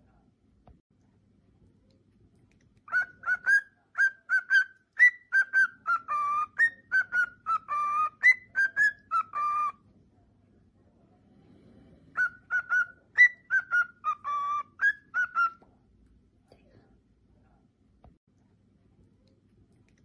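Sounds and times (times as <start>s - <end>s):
cockatiel whistling: 2.9s - 9.8s, 12.1s - 15.6s.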